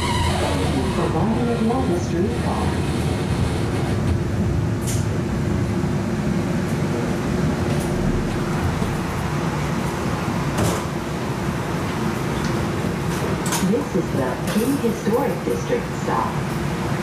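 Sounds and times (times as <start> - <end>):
streetcar rumble and hum: 0.0 - 17.0.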